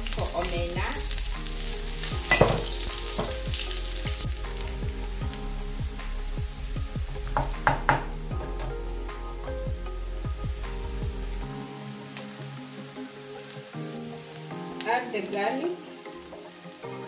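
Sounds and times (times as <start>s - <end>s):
onions sizzling in oil: 0.0s - 9.0s, 10.1s - 17.0s.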